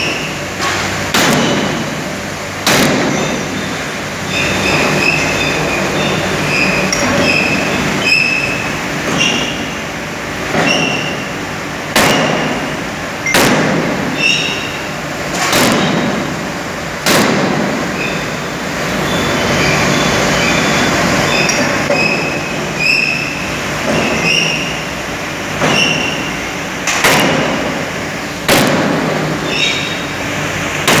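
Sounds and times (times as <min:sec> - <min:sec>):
sharp metal bangs: 0:00.0 - 0:09.8, 0:10.5 - 0:18.4, 0:25.6 - 0:30.1
forging presses running: 0:00.0 - 0:31.0
short high squeals: 0:03.6 - 0:09.7, 0:14.2 - 0:14.9, 0:18.0 - 0:18.4, 0:19.0 - 0:24.8, 0:25.6 - 0:26.4, 0:29.4 - 0:30.2.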